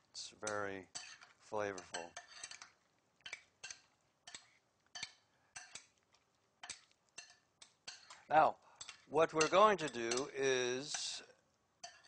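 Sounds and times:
spoon clinking in glass bowl: 6.6 - 8.2, 8.8 - 11.2, 11.8 - 12.0.

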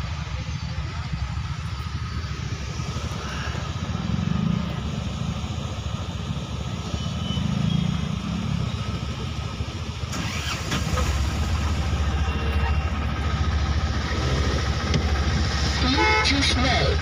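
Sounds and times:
deeper engine rumble: 0.0 - 17.0
vehicle engines idling: 0.0 - 17.0.

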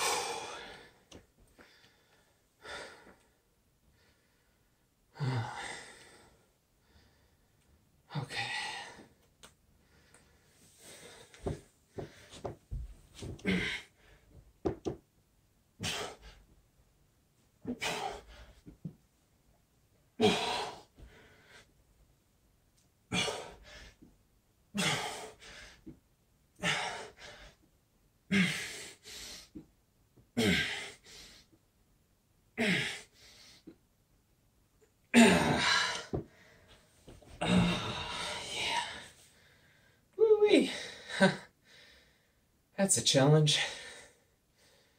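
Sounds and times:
man sighing heavily: 0.0 - 0.9, 13.2 - 14.2, 35.1 - 36.5, 37.4 - 39.1.

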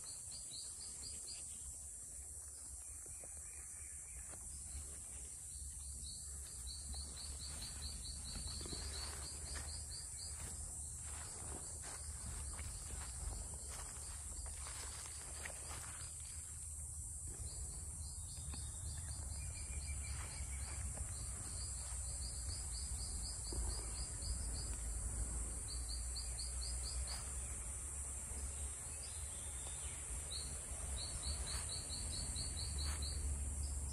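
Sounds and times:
insects droning: 0.0 - 33.9.

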